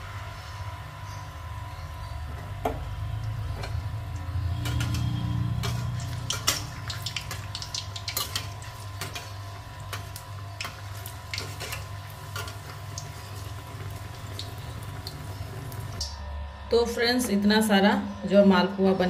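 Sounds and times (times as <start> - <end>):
batter sizzling in hot oil: 2.5 - 16.0.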